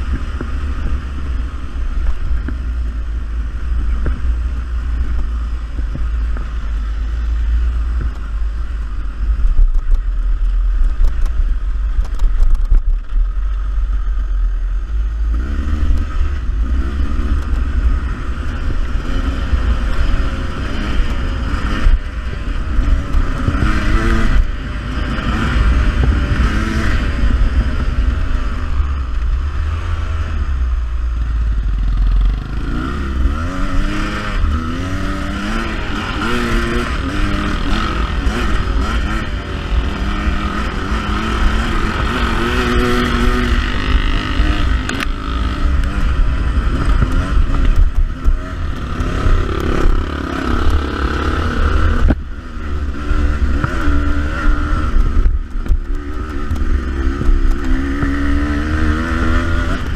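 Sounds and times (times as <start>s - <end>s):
wind rumble on microphone: 0.0s - 59.9s
dirt bike engine revving: 15.2s - 59.9s.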